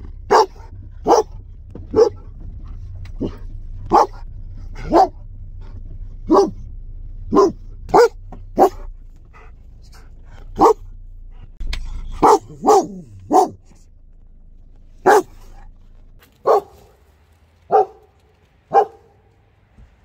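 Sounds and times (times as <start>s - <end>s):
dog barking: 0.3s - 2.3s, 3.2s - 5.2s, 6.2s - 6.6s, 7.3s - 10.9s, 12.0s - 13.7s, 15.0s - 15.7s, 16.4s - 17.0s, 17.6s - 19.3s.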